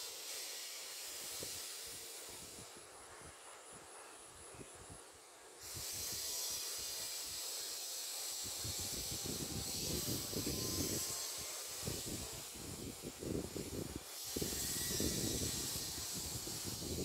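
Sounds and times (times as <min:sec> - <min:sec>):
steady outdoor hiss: 0:00.0 - 0:17.0
wind buffeting microphone: 0:08.4 - 0:17.0.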